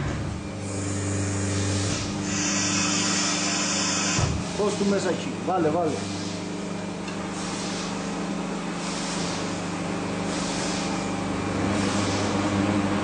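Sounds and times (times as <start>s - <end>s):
machine electric hum: 0.0s - 13.0s
machine hissing: 0.6s - 5.0s, 7.3s - 8.1s, 8.7s - 11.1s.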